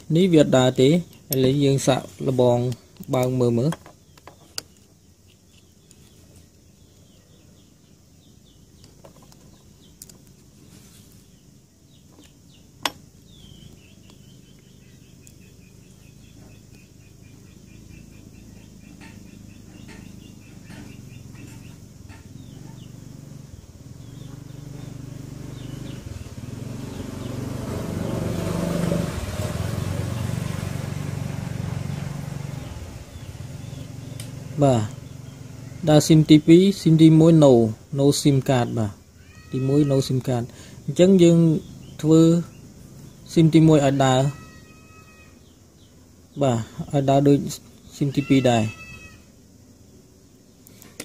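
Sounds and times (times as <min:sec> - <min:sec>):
faint bird-like chirps: 0:00.0 - 0:27.4, 0:31.7 - 0:51.0
vehicle engine: 0:08.4 - 0:37.9, 0:40.3 - 0:44.7.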